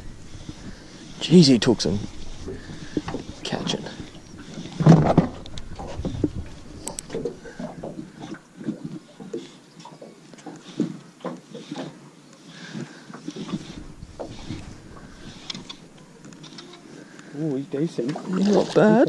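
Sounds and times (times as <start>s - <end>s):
knocks and rustles: 4.6s - 6.5s.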